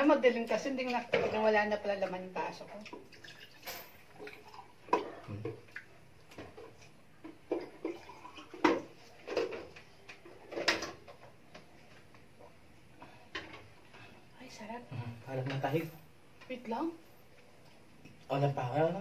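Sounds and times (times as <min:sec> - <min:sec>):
water pouring into a glass: 0:03.1 - 0:04.7, 0:07.8 - 0:08.6.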